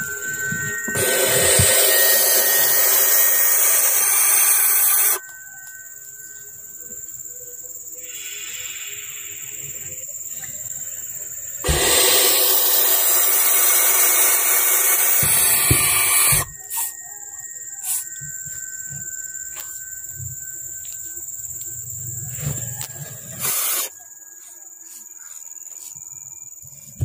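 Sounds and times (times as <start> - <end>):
owl chicks hissing: 1.0 - 5.2, 8.0 - 9.6, 11.6 - 16.9.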